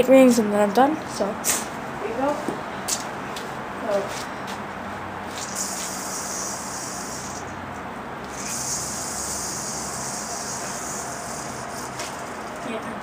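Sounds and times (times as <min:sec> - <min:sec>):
yo-yo spinning hiss: 0:05.3 - 0:07.6, 0:08.2 - 0:12.2.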